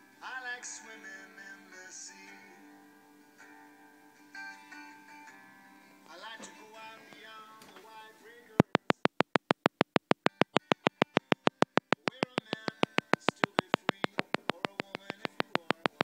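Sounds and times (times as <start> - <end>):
rapid clicking: 8.6 - 16.0.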